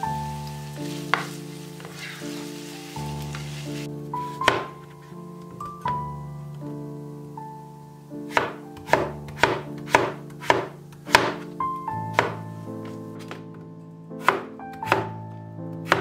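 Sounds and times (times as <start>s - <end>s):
cleaver chopping on wooden board: 4.4s - 4.7s, 8.3s - 11.4s, 12.2s - 12.4s, 14.2s - 15.1s.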